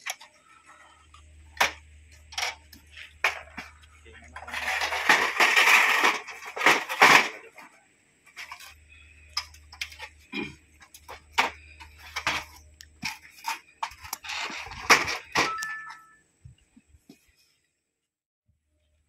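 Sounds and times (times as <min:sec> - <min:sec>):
ladder scraping on concrete: 0:04.4 - 0:07.6, 0:10.8 - 0:16.1.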